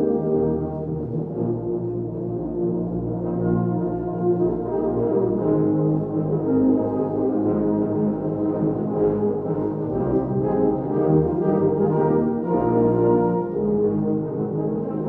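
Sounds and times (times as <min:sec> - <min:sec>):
low brass chords: 0:00.0 - 0:15.0.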